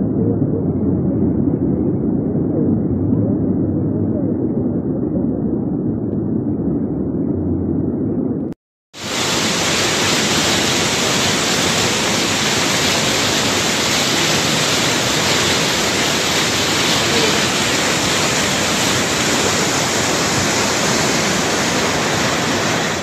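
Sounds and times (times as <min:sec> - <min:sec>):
floodwater rushing down a street: 0:09.0 - 0:23.0.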